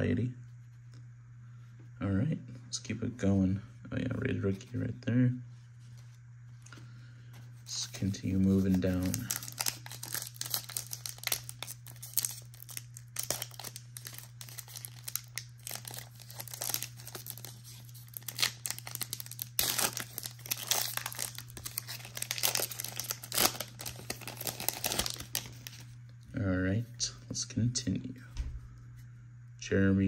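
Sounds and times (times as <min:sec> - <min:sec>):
steady low hum: 0:00.0 - 0:30.0
foil wrapper crinkling and tearing: 0:07.7 - 0:26.0.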